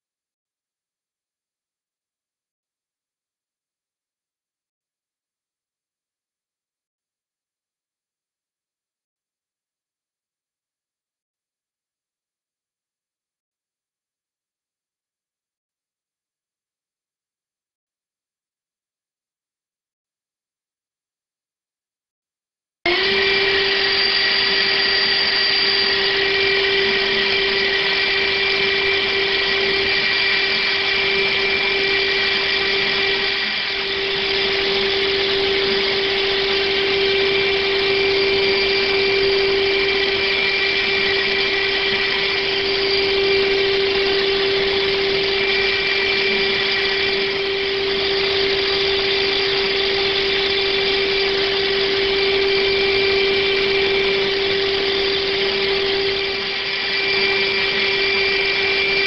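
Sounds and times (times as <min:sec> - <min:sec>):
high-speed spindle whine: 0:22.9 - 0:59.0.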